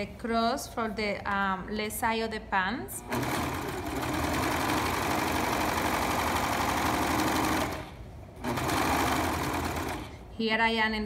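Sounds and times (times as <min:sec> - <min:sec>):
overlock machine running: 0:03.0 - 0:10.3.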